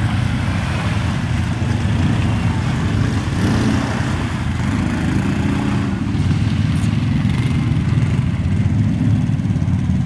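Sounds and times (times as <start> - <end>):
quad bike engines at low revs: 0.0 - 10.0.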